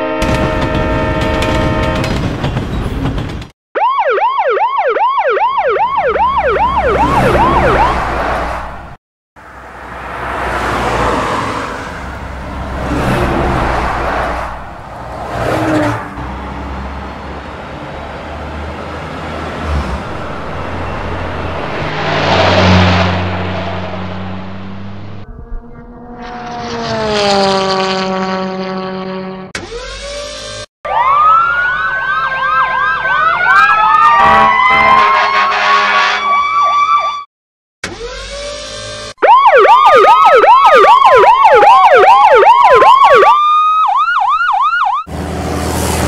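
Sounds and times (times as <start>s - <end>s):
emergency siren yelping: 3.8s - 8.7s, 29.6s - 45.1s
road traffic passing: 5.8s - 36.5s, 44.9s - 46.0s.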